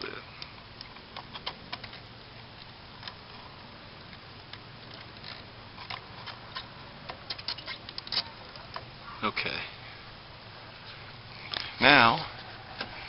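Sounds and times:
light clicks and crackles: 0:00.0 - 0:08.9.

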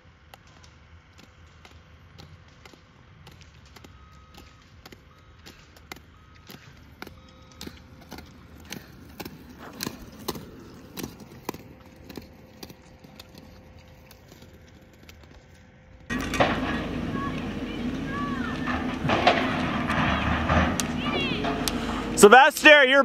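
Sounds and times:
ski pole tips clicking on asphalt: 0:00.3 - 0:15.8.

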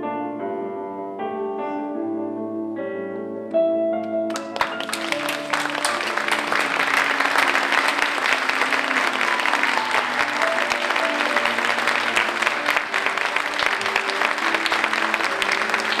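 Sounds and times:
piano music: 0:00.0 - 0:16.0
audience applauding: 0:04.3 - 0:16.0.

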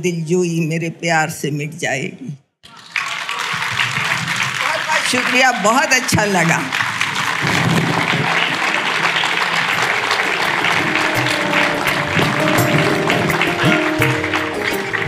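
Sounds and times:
audience applauding: 0:02.6 - 0:15.0
music playing: 0:07.1 - 0:15.0.

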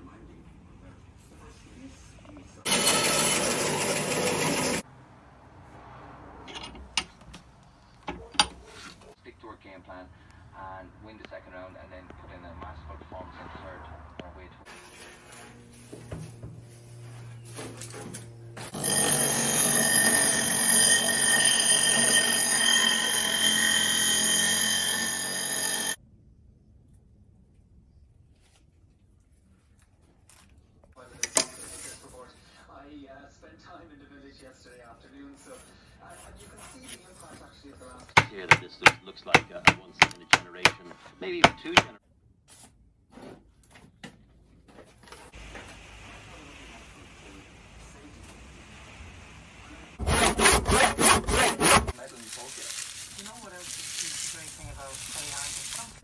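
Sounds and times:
bench grinder grinding metal: 0:02.7 - 0:04.8, 0:18.7 - 0:26.0, 0:38.2 - 0:41.9, 0:50.0 - 0:53.9
hammer striking timber: 0:38.2 - 0:42.0.

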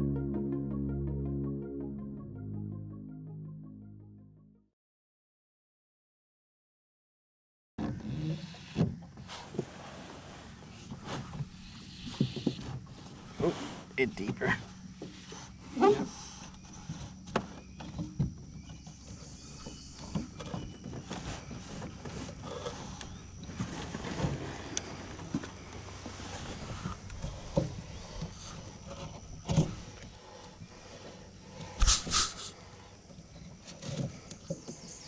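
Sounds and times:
electric trolling motor humming: 0:08.3 - 0:35.0.

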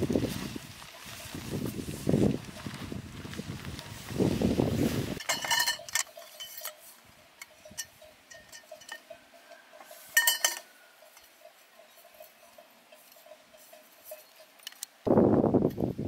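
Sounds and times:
plastic tarp rustling: 0:00.0 - 0:05.2
metal tent poles clinking: 0:00.0 - 0:16.0.

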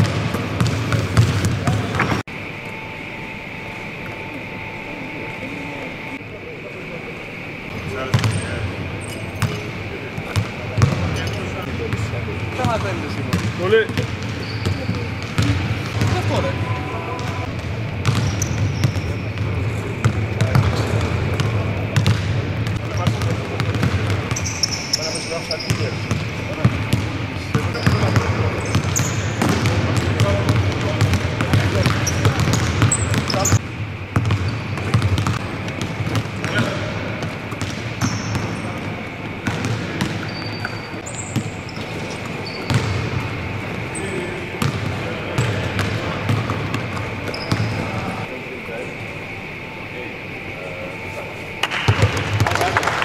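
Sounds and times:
basketballs bouncing on hardwood: 0:00.0 - 0:02.2, 0:34.2 - 0:38.5
sneaker squeaks: 0:07.3 - 0:48.3.

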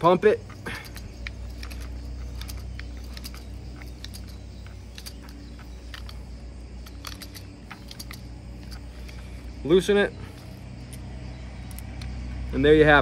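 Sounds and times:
steady low hum: 0:00.0 - 0:13.0
crimping tool metallic clicks: 0:00.4 - 0:09.2.

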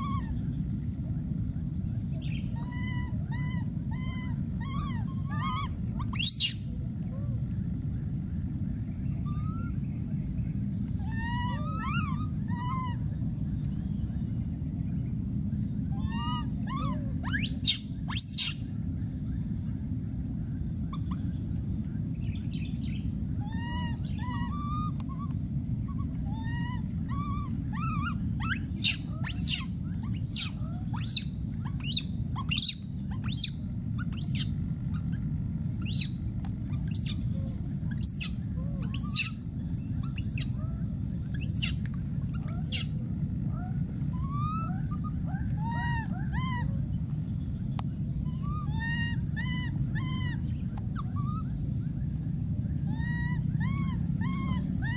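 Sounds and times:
baby monkeys whimpering cries: 0:00.0 - 0:00.4, 0:02.5 - 0:06.7, 0:09.2 - 0:09.8, 0:11.0 - 0:13.1, 0:15.9 - 0:18.6, 0:23.4 - 0:35.2, 0:35.8 - 0:36.1, 0:36.7 - 0:39.4, 0:40.0 - 0:46.8, 0:48.2 - 0:51.5, 0:52.8 - 0:54.9.

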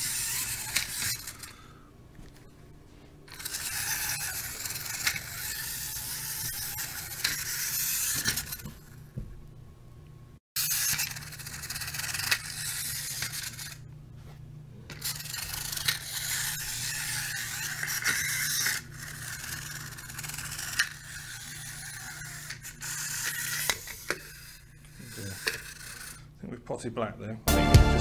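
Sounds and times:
wind-up toy motor whirring: 0:00.0 - 0:01.8, 0:03.3 - 0:09.1, 0:10.6 - 0:13.9, 0:14.9 - 0:26.4.

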